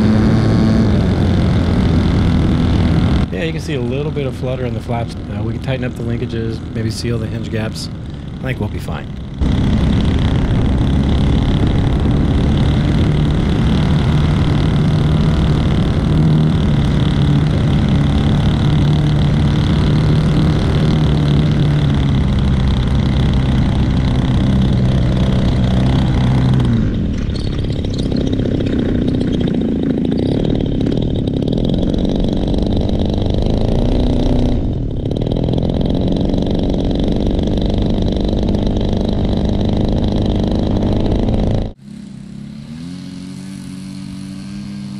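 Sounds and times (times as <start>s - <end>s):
model airplane engine drone: 0.0s - 44.9s.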